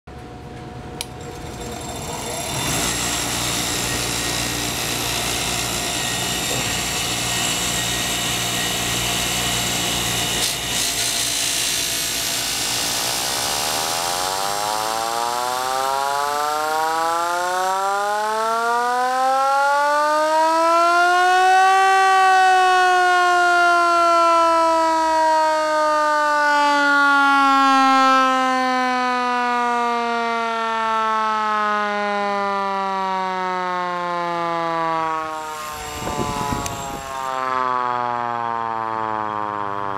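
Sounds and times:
bench grinder humming: 1.0 - 15.8, 35.3 - 37.5
siren howling: 1.2 - 39.9.

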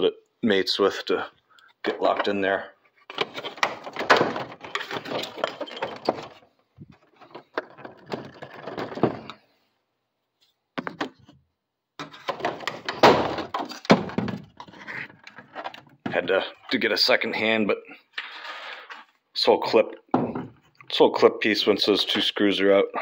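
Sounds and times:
hard plastic clattering and snapping: 3.0 - 9.4, 10.8 - 11.3, 12.0 - 16.3.

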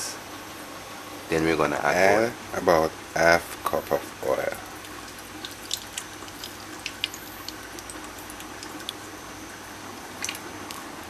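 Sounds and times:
hot oil crackling: 1.8 - 11.0
oil pouring into pot: 4.6 - 9.2, 10.2 - 10.8.

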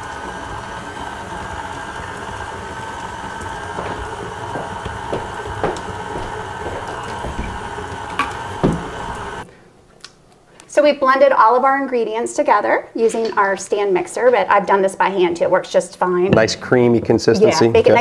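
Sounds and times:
stand mixer running: 0.0 - 9.5
short knocks: 3.7 - 9.1.

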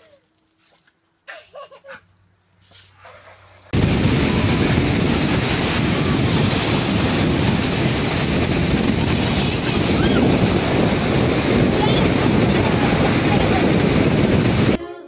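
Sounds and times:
surf breaking: 3.7 - 14.8
wind buffeting microphone: 3.7 - 14.8.

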